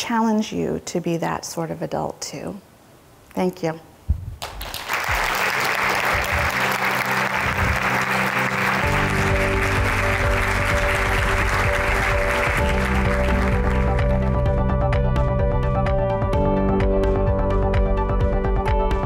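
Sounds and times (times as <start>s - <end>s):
audience applauding: 4.4s - 14.5s
background music: 4.7s - 19.0s.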